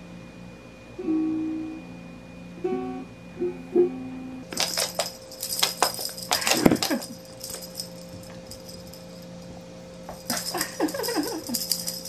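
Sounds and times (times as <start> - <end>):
cat toy rattling and jingling: 4.5 - 12.0.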